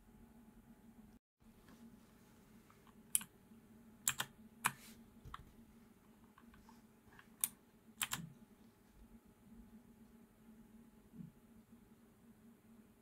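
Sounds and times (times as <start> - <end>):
mechanical keyboard clicks: 4.1 - 4.8, 7.4 - 8.3.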